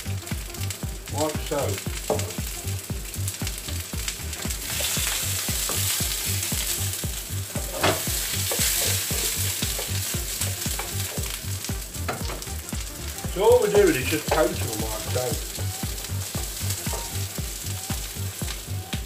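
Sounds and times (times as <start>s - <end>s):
vegetables sizzling in a frying pan: 0.0s - 19.0s.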